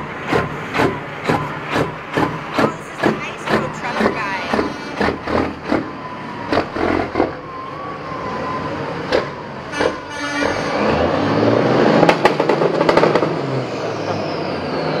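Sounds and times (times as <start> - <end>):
truck diesel engine pulling away: 0.0 - 15.0.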